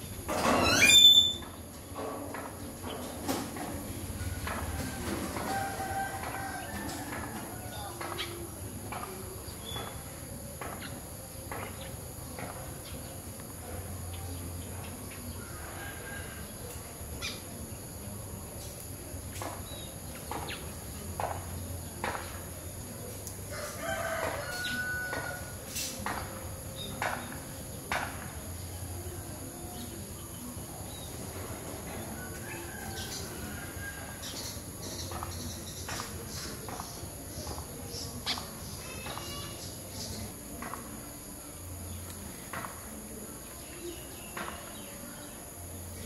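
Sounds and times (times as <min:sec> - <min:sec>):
rooster crowing: 0:04.9 - 0:07.9, 0:23.5 - 0:25.6.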